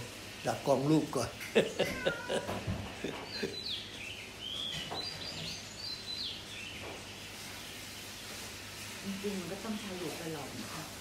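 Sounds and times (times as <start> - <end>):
small bird chirping: 1.6 - 8.5.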